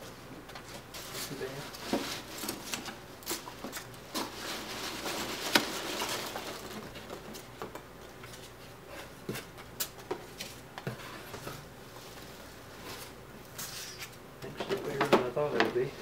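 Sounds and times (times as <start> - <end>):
packing peanuts rustling and squeaking: 0.9 - 7.5, 13.5 - 14.2.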